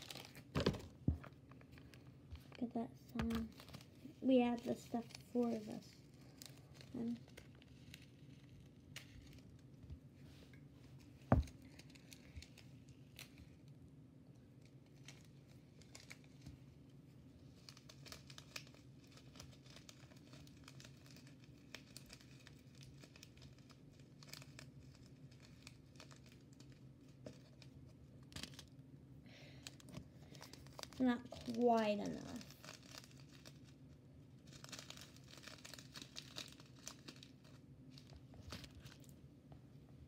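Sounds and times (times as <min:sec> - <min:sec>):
plastic packets crinkling: 0:00.0 - 0:09.7, 0:17.4 - 0:39.2.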